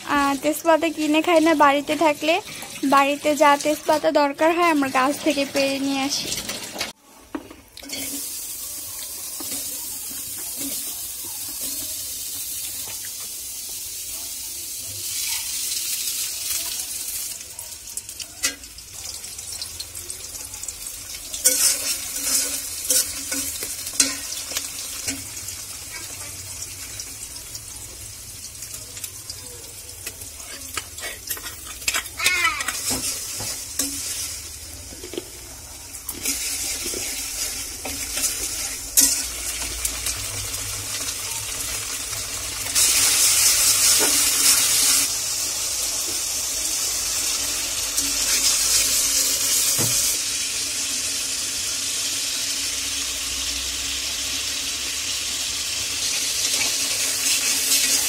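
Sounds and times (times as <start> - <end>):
onions sizzling in a pan: 0.0 - 58.0
steel spatula scraping a pan: 7.8 - 8.4, 21.4 - 25.2, 30.4 - 34.4, 36.1 - 39.8.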